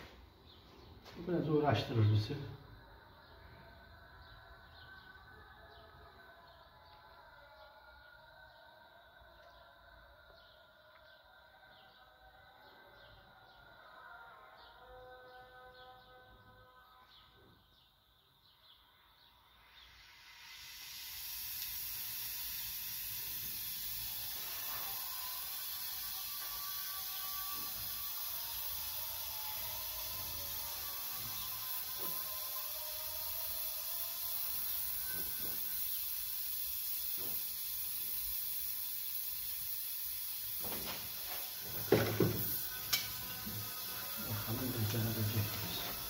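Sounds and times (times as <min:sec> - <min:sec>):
gas torch flame hissing: 0:19.6 - 0:46.0.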